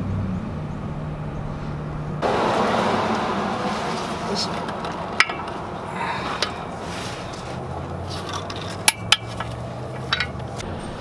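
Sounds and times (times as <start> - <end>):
wrench metallic clinks: 8.2 - 10.4.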